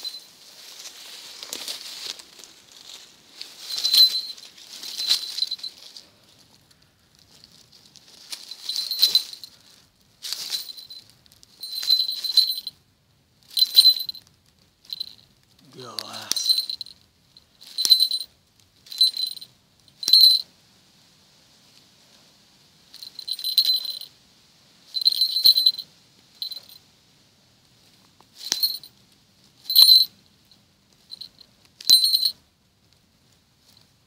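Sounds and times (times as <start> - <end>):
small metal bell jingling: 0.0 - 2.0, 2.7 - 6.1, 7.4 - 12.8, 13.5 - 20.5, 22.9 - 24.1, 24.9 - 26.8, 28.4 - 29.0, 29.6 - 30.2, 31.0 - 32.4.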